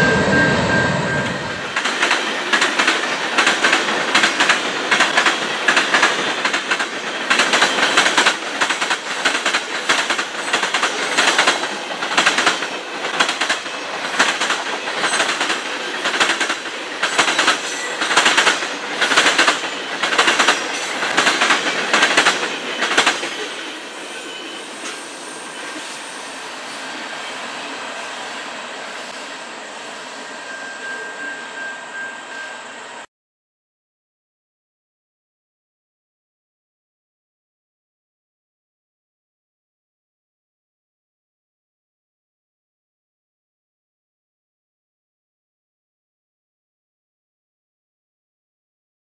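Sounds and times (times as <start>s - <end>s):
train wheels clattering over crossing: 0.0s - 24.0s
train rolling rumble: 0.0s - 29.9s.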